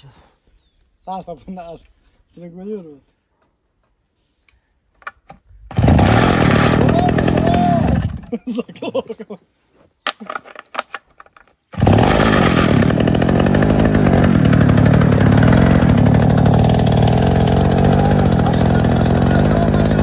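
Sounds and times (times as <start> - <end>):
petrol engine running: 5.7 - 8.2, 11.8 - 20.0.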